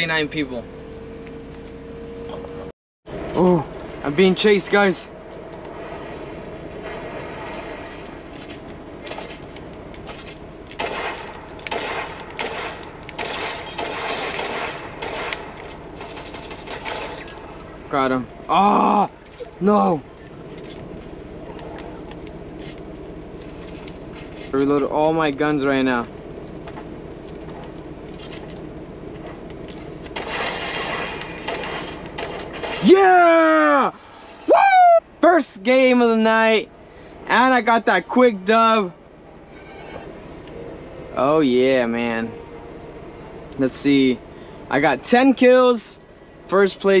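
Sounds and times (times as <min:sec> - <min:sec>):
steady low hum: 0:00.0 - 0:47.0
video game background: 0:00.0 - 0:47.0
gunfire bursts: 0:10.8 - 0:17.4.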